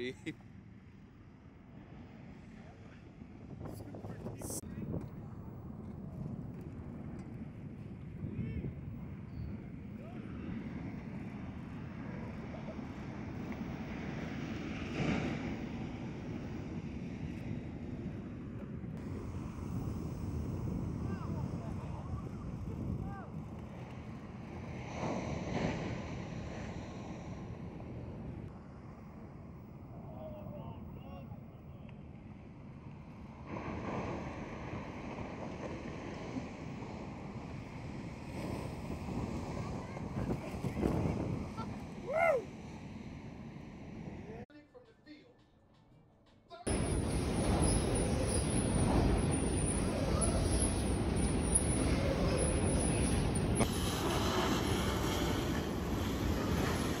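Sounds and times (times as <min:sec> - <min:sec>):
wind on microphone: 0:02.8 - 0:28.8, 0:33.5 - 0:44.2
ocean surf: 0:07.0 - 0:31.4, 0:32.1 - 0:44.3, 0:46.7 - 0:57.0.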